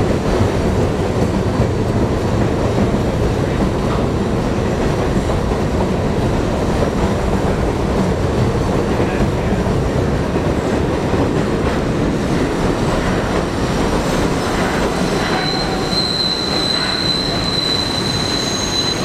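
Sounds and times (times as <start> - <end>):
train rumbling on steel track: 0.0 - 19.0
high wheel squeal: 14.3 - 19.0.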